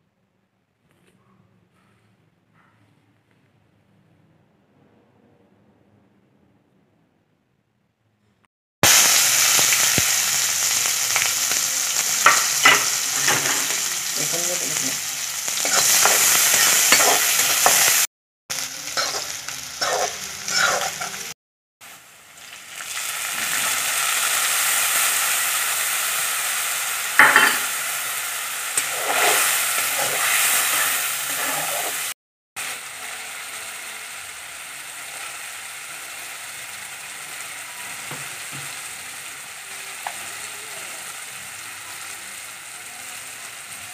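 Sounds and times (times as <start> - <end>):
onions sizzling in oil: 8.8 - 43.9
spatula scraping a wok: 15.2 - 18.1, 18.9 - 21.3, 28.7 - 32.1.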